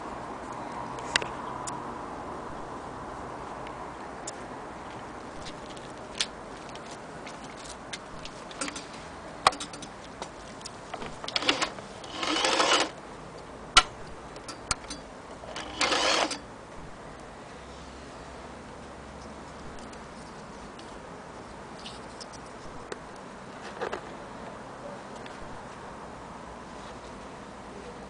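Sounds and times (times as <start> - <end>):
electric sewing machine running: 11.3 - 12.9, 15.6 - 16.4.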